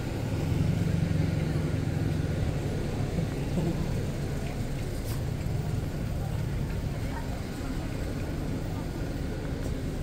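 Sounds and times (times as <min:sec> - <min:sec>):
car passing on wet pavement: 0:00.0 - 0:10.0.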